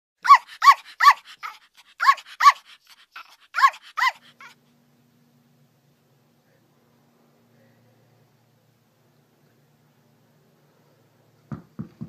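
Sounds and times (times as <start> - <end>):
small dog yapping: 0.2 - 4.6.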